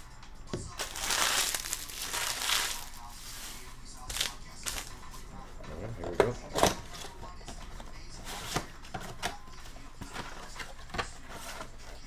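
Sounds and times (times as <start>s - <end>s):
cardboard rustling: 0.7s - 5.0s.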